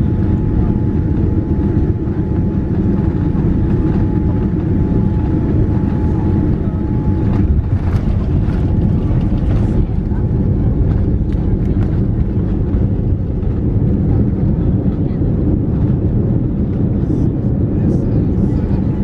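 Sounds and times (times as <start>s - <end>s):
faint steady whine: 0.0s - 12.8s
aircraft cabin rumble: 0.0s - 19.0s.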